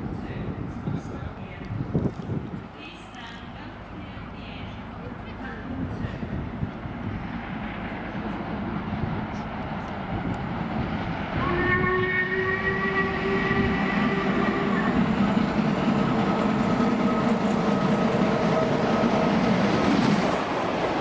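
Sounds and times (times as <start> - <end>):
steam locomotive rumbling: 0.0 - 21.0
steam whistle blast: 11.4 - 15.0.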